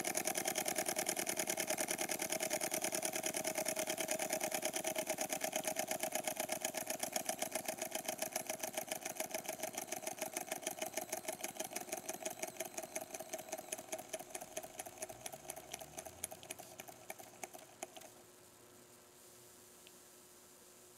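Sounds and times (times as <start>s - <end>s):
toy steam engine clicking: 0.0s - 18.1s
faint steady hiss: 14.3s - 20.9s.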